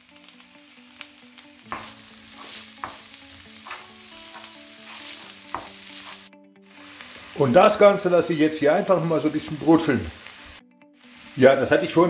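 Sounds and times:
meat sizzling in a frying pan: 0:00.0 - 0:12.0
wooden spatula scraping a pan: 0:01.7 - 0:03.0, 0:03.6 - 0:06.3.

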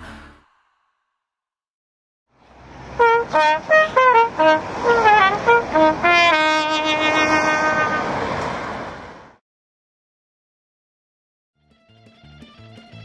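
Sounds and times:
solo trumpet: 0:03.0 - 0:08.2.

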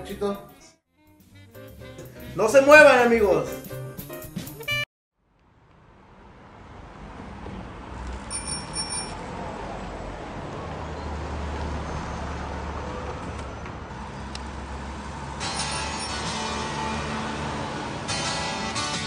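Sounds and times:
city street traffic: 0:04.6 - 0:19.0
bicycle bell ringing: 0:08.3 - 0:09.2, 0:15.4 - 0:16.5.

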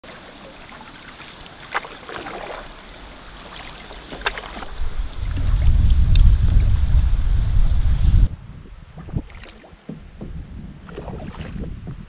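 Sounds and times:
sharp splashes: 0:00.0 - 0:05.8
water around a canoe: 0:00.0 - 0:12.0
wind rumble on microphone: 0:04.6 - 0:12.0.

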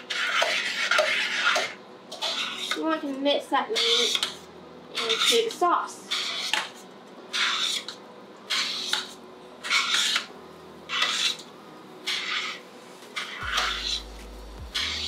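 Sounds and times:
spoon scraping a metal pot: 0:00.0 - 0:02.8, 0:05.0 - 0:10.3, 0:10.9 - 0:11.5, 0:12.1 - 0:12.6, 0:13.2 - 0:14.1, 0:14.8 - 0:15.0.

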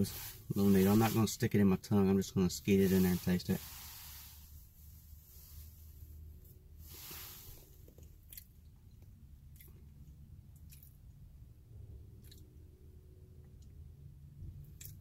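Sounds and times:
soft breathy hisses: 0:00.0 - 0:01.5, 0:02.6 - 0:06.2, 0:06.8 - 0:08.0
lip smacks and tongue clicks: 0:07.8 - 0:11.2, 0:12.2 - 0:12.6, 0:14.6 - 0:15.0.

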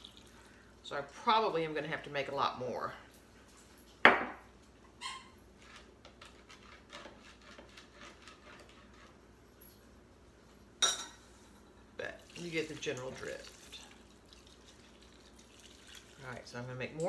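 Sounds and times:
glass cup knocking on countertop: 0:04.0 - 0:04.4
dishware clinking: 0:10.8 - 0:11.2.

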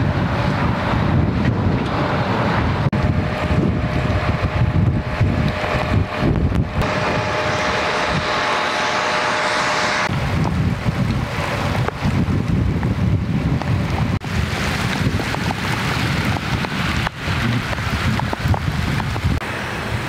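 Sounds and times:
storm wind buffeting microphone: 0:00.0 - 0:20.0
rain hissing: 0:02.8 - 0:20.0.

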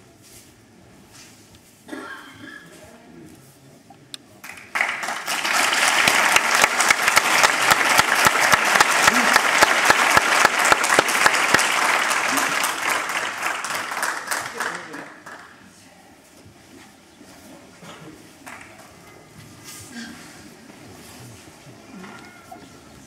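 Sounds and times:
crowd applauding: 0:04.4 - 0:15.6, 0:18.4 - 0:18.9.

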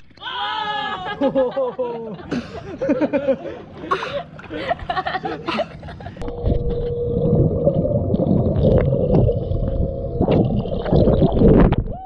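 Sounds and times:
faint steady hum: 0:02.3 - 0:12.0
underwater rumble of moving water: 0:06.2 - 0:11.9.

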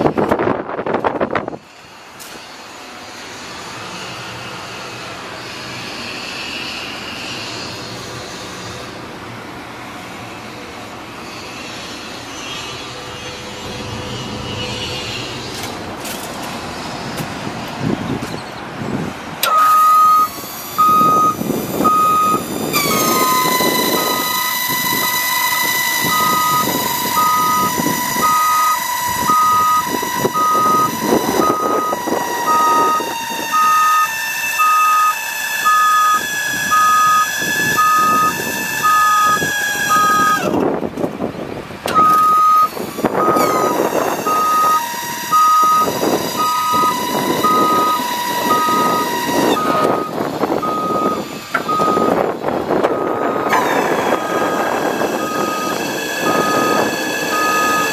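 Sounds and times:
engine noise: 0:00.0 - 0:57.9
steady high whine: 0:19.4 - 0:40.6, 0:41.9 - 0:57.9
truck backup alarm beeping: 0:19.4 - 0:40.6, 0:41.8 - 0:57.9.

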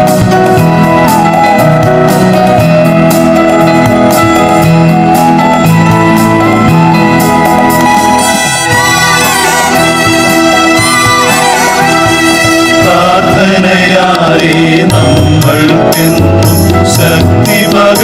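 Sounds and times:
wavering melody line: 0:00.0 - 0:13.6
background music melody: 0:00.0 - 0:18.0.

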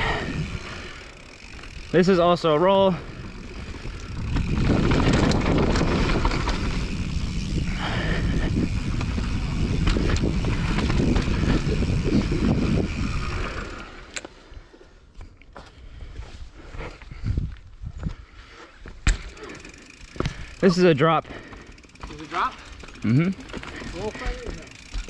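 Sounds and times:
tyres rumbling on dirt: 0:00.0 - 0:14.0
bike knocking and rattling: 0:00.0 - 0:14.4, 0:18.8 - 0:25.0
wind buffeting microphone: 0:02.8 - 0:13.8, 0:16.0 - 0:18.3.

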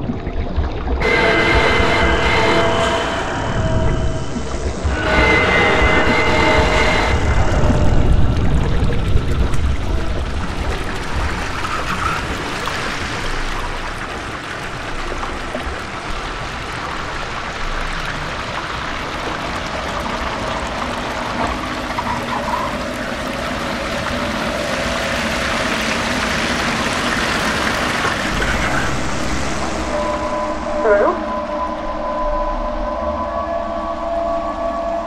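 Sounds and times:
steady rushing noise: 0:01.0 - 0:12.7, 0:23.4 - 0:32.9.

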